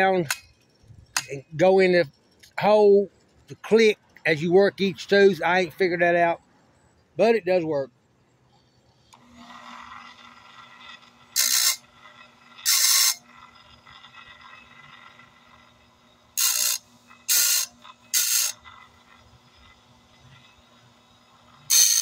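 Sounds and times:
grinding wheel on saw teeth: 9.1s - 22.0s
sharpener motor humming: 9.1s - 22.0s.

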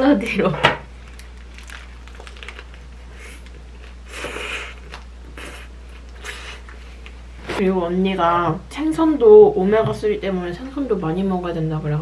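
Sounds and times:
paper wrapper rustling crunch: 1.0s - 4.0s
person biting and chewing food: 1.0s - 7.2s.

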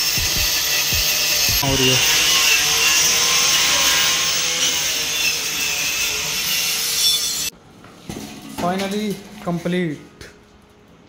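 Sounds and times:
power tool grinding metal: 0.0s - 7.5s.

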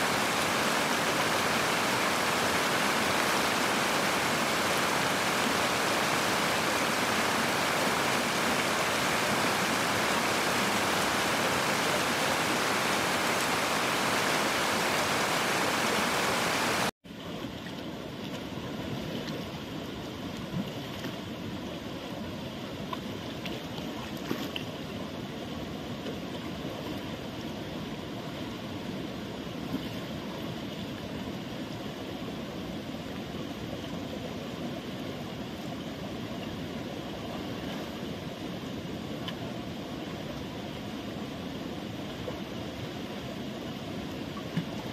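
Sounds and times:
river water rushing: 0.0s - 16.9s.

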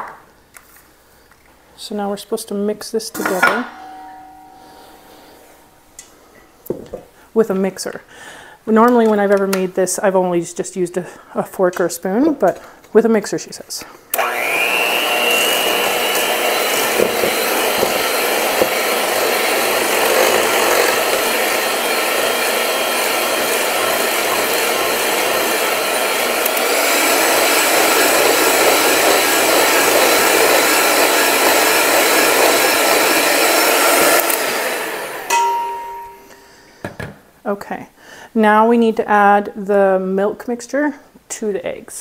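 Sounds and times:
electric mixer whisking eggs: 14.1s - 36.3s.

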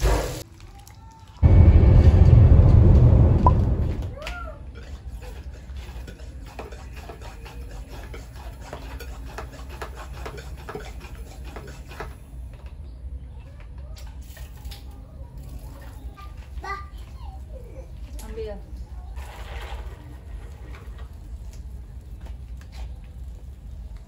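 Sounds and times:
steady low rumble: 1.4s - 4.4s.

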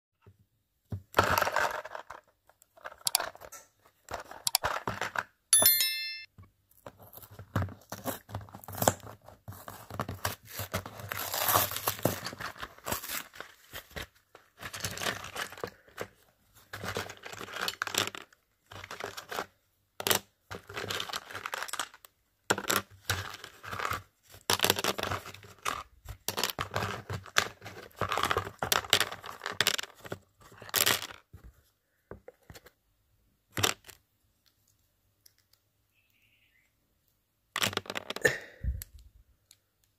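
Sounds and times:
small plastic parts clicking: 1.1s - 5.2s, 33.5s - 36.2s, 38.8s - 39.9s.

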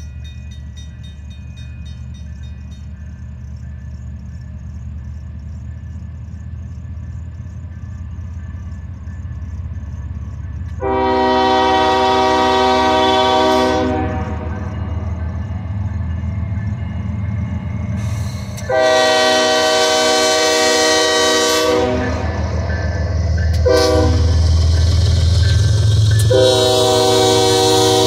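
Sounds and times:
diesel locomotive engine rumble: 0.0s - 28.0s
locomotive horn blast: 10.8s - 14.7s, 18.6s - 22.6s, 23.5s - 24.7s, 26.2s - 28.0s.

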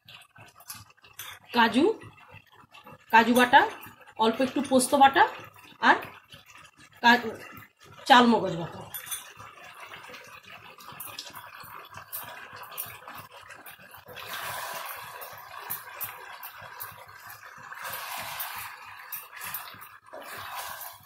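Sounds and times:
meat sizzling in oil: 9.4s - 21.0s
spatula scraping a pan: 17.7s - 21.0s.

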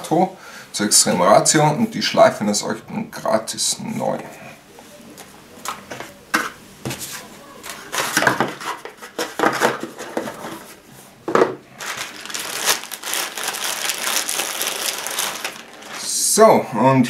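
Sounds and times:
plastic bag crinkling: 11.6s - 16.4s.

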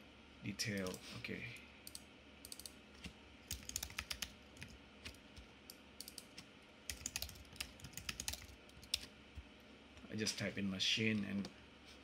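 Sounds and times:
computer keyboard typing: 1.9s - 2.8s, 3.4s - 5.2s, 6.0s - 9.1s.

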